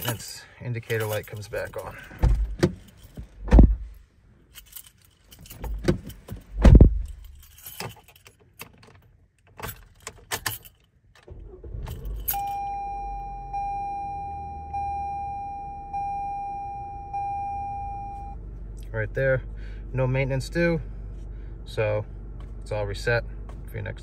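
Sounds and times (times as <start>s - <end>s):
keys jangling: 0.0s - 12.5s
car engine starting and idling: 0.0s - 24.0s
dashboard warning chime: 12.0s - 18.4s.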